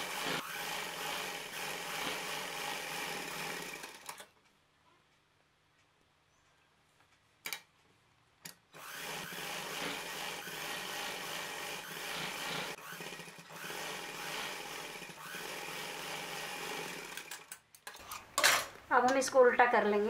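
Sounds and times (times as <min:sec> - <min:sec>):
sewing machine stitching: 0:00.0 - 0:04.3, 0:08.8 - 0:17.5
sewing machine clicks: 0:15.9 - 0:17.6.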